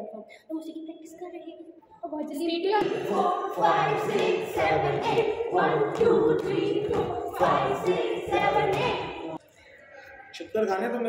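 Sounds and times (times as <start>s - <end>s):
chorus singing over beat: 2.8s - 9.4s.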